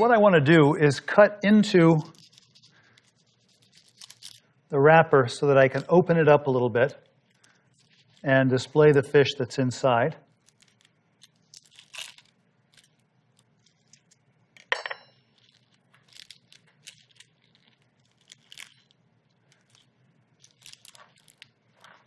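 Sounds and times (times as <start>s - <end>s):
leaves rustling and tearing: 1.9s - 4.4s, 10.3s - 14.1s, 15.4s - 22.0s
utensil clink: 14.7s - 15.3s.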